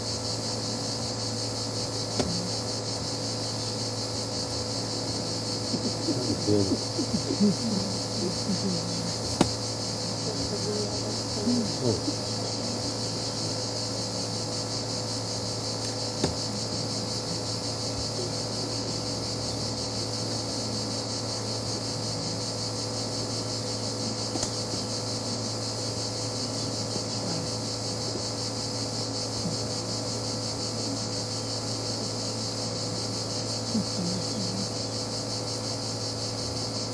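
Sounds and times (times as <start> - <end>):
insects chirring: 0.0 - 36.9
low steady hum: 0.0 - 36.9
faint voices murmuring: 5.2 - 14.3
sharp click: 24.3 - 24.5.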